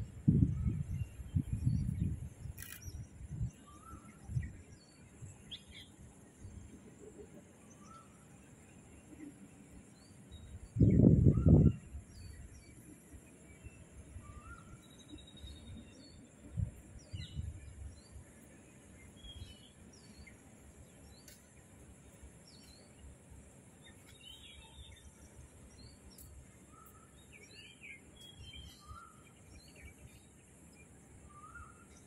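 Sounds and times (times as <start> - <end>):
low rumbles on microphone: 0.0 - 3.5, 10.7 - 12.0
birds chirping: 0.3 - 32.0
background hiss: 11.8 - 32.0.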